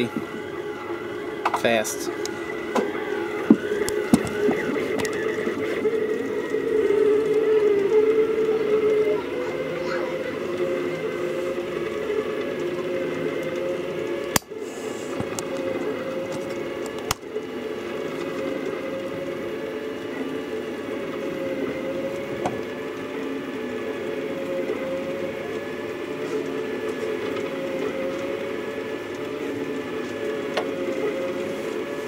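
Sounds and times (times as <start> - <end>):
stepper motors whining: 0.0 - 32.0.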